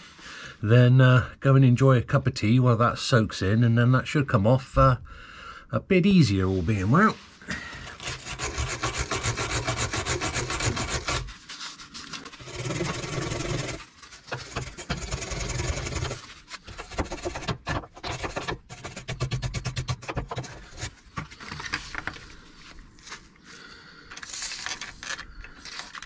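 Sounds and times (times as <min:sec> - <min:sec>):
wire brush rasping on metal: 0:07.8 - 0:20.9.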